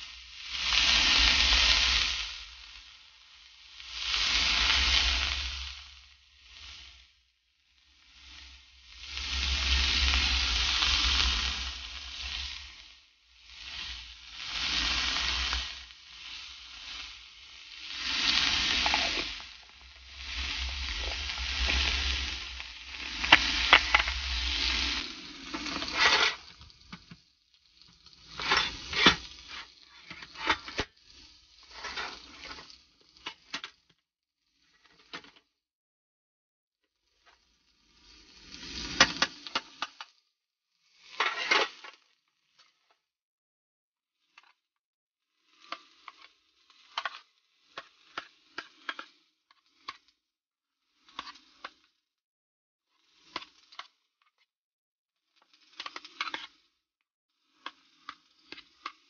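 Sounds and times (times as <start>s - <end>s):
food sizzling in a pan: 0.0s - 35.2s, 37.2s - 40.2s, 40.8s - 42.9s, 45.4s - 50.1s, 50.9s - 51.9s, 53.0s - 53.9s, 55.6s - 56.7s, 57.4s - 59.0s
utensils knocking pan: 23.3s - 24.2s.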